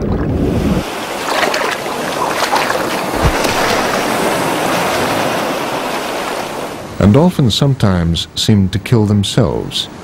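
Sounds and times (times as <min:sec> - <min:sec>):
sea water rushing and splashing: 0:00.0 - 0:07.3
sharp splashes: 0:00.9 - 0:06.7.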